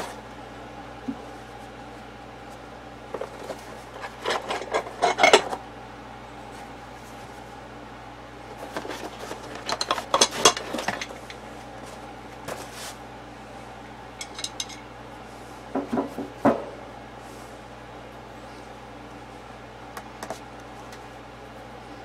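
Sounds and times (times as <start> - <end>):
steady hum: 0.0 - 22.0
metal tools clinking on bench: 14.2 - 14.9.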